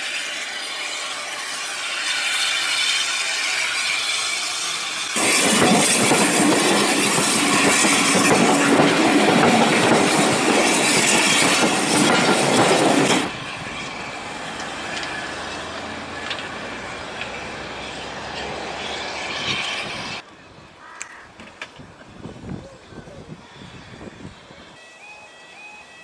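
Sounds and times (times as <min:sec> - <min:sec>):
steam locomotive exhaust: 0:00.0 - 0:20.2
train wheels on rails: 0:00.0 - 0:20.3.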